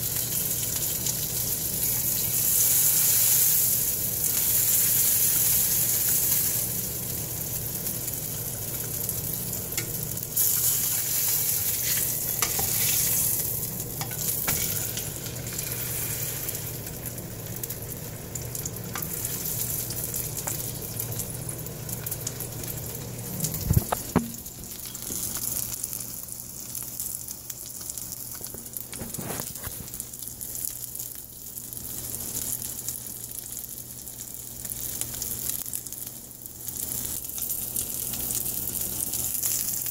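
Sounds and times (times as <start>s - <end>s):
food sizzling in a frying pan: 0.0s - 39.9s
spatula scraping a pan: 10.4s - 13.4s, 14.0s - 15.0s.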